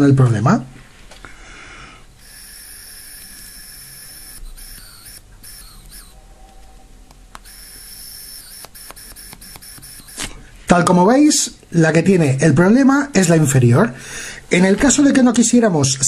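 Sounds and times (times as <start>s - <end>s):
air hissing through valve: 1.7s - 6.2s, 7.4s - 10.5s.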